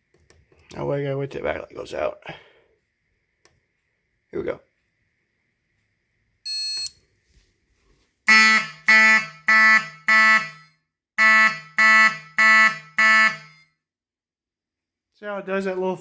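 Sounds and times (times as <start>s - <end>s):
short high beep: 6.5s - 6.9s
fire alarm horn blasts: 8.3s - 13.8s.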